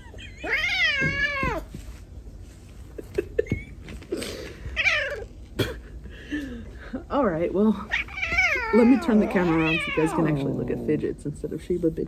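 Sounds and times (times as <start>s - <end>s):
cat meowing: 7.9s - 10.6s.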